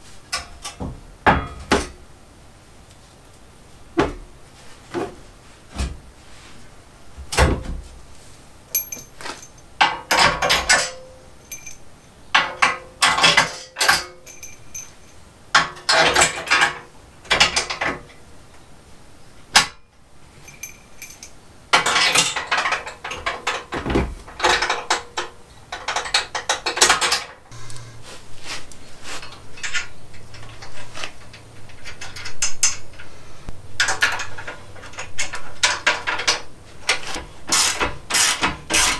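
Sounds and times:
metal tools knocking: 8.7 - 11.8, 33.8 - 38.9.

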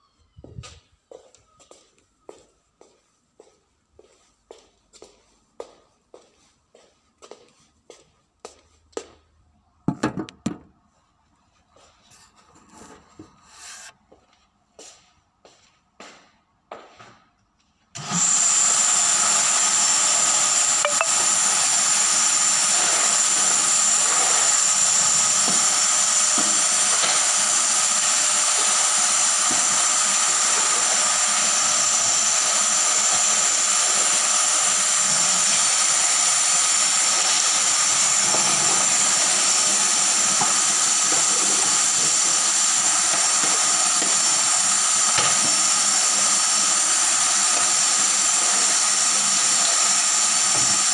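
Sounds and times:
vacuum cleaner motor whining: 18.0 - 50.9.

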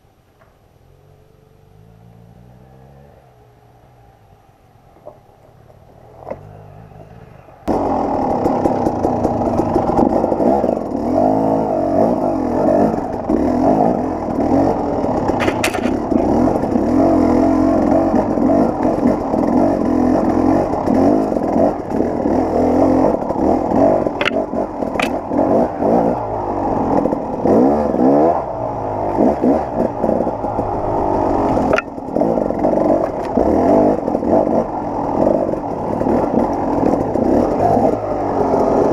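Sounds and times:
two-stroke dirt bike engine revving: 0.8 - 4.2, 6.0 - 38.9
sharp clacks: 15.3 - 16.0, 24.2 - 25.2.

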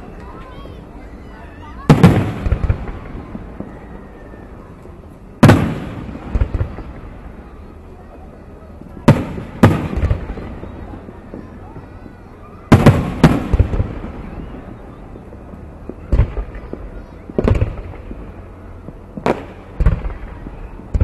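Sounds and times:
fireworks booming with echo: 0.0 - 21.0.

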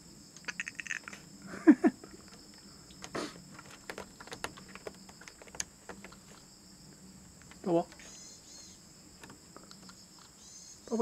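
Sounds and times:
high insect chirring: 0.0 - 11.0
cat giving hoarse croaks: 0.5 - 1.2
rustles and clicks: 2.0 - 8.2.

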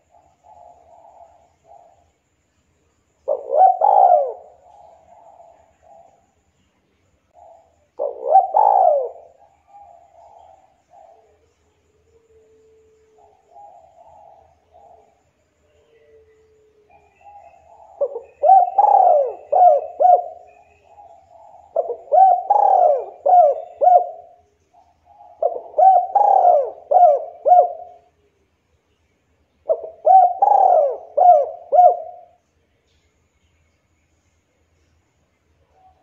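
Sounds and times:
dove cooing: 0.0 - 2.1, 3.2 - 6.2, 7.3 - 28.2, 29.6 - 32.4.

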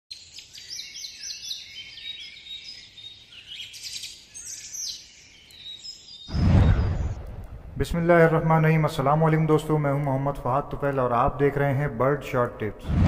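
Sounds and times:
birds chirping: 0.1 - 8.0.

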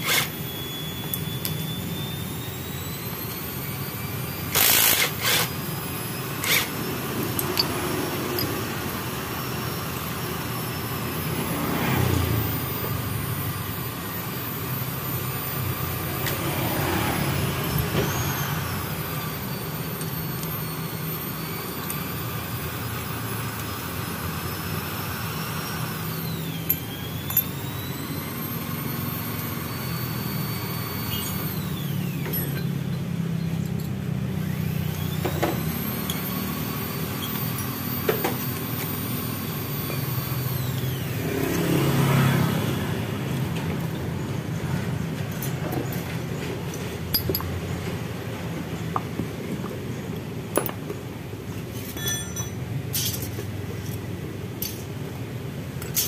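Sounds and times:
high sliding whine: 0.0 - 49.9
low rumble of engines: 0.0 - 56.0
hand tools clicking on engine parts: 6.4 - 9.0, 25.6 - 27.8, 32.2 - 34.1, 45.1 - 55.0, 55.8 - 56.0.

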